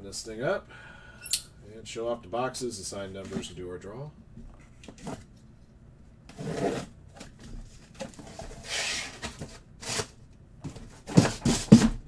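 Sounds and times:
cardboard rustling: 6.4 - 12.0
boxes knocking: 10.7 - 12.0.

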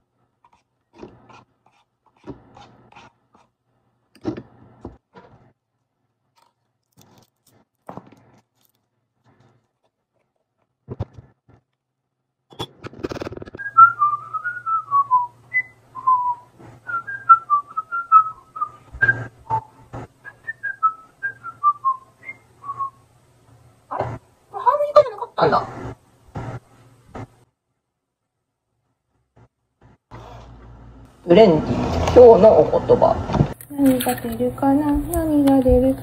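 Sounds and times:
person whistling a tune: 13.6 - 22.9.

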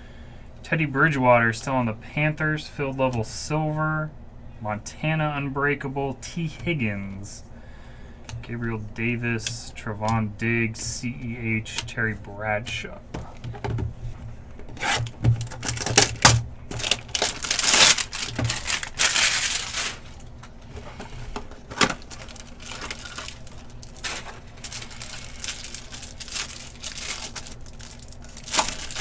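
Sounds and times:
cellophane crinkling: 14.7 - 29.0
box being torn open: 14.8 - 20.1, 24.0 - 29.0.

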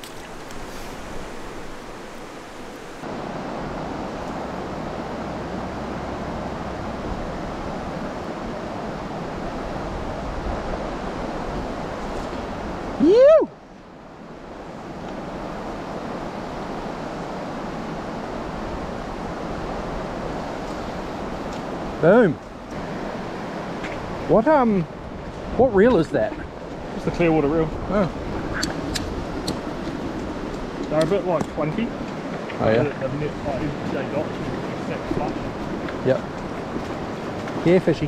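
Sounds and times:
river water over stones: 0.0 - 38.0
person shouting: 13.0 - 13.5.

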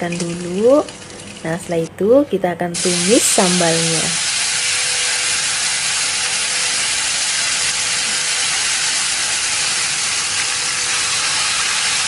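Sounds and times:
paste sizzling in hot oil: 2.8 - 12.0.

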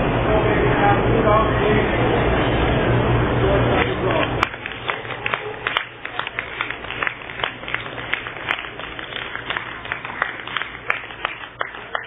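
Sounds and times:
crowd murmur: 0.0 - 12.0
spectators clapping: 3.8 - 12.0.

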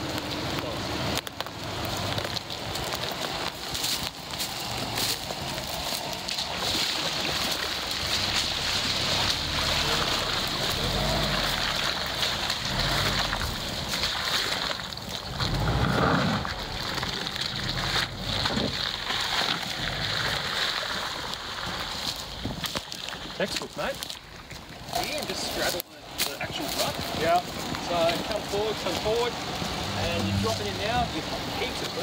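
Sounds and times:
tyres splashing through puddles: 0.0 - 32.0
car engine at low speed: 7.7 - 23.2, 26.9 - 31.8.

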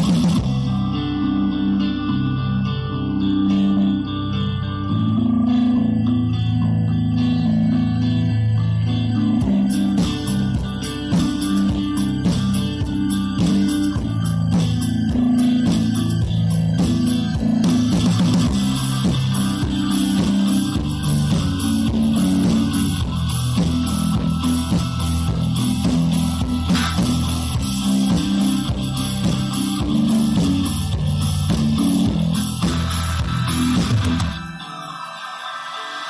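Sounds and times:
guitar and bass music: 0.0 - 36.0.

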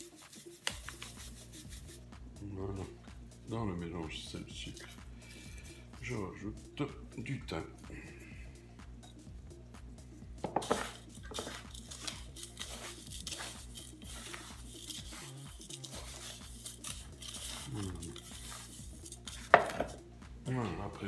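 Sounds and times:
salt scraping in metal bowl: 0.0 - 2.0, 10.4 - 20.0.

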